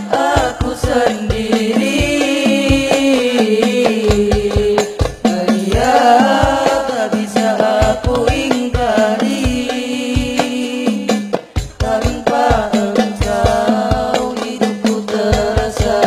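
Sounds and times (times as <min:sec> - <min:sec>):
voices singing melismatic line: 0:00.0 - 0:11.2
hand drums beat: 0:00.0 - 0:16.0.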